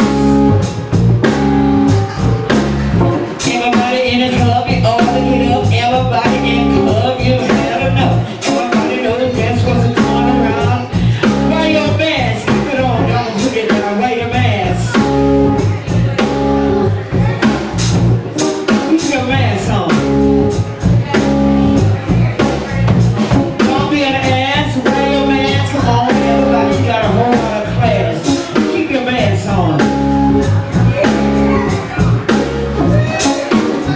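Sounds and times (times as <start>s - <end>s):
live band playing: 0.0s - 33.9s
steady drum beat: 0.0s - 33.9s
person singing: 3.0s - 16.6s, 23.2s - 33.9s.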